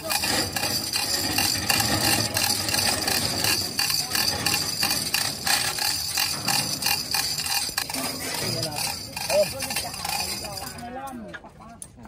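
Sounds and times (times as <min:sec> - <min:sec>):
hand tools knocking on metal: 0:00.0 - 0:10.8.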